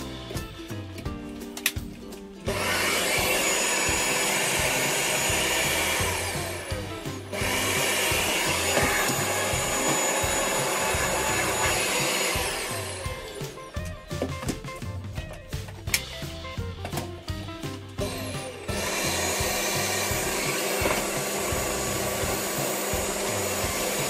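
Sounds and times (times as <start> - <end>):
vacuum cleaner running: 2.4 - 14.3, 16.9 - 24.0.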